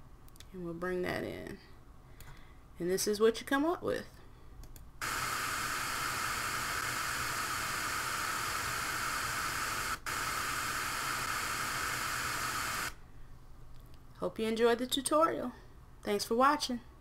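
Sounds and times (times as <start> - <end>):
tv static hiss: 5.0 - 13.0.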